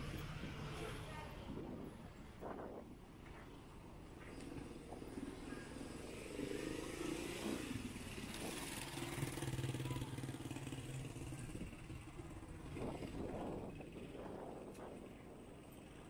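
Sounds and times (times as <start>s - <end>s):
vehicles driving past: 0.0s - 16.0s.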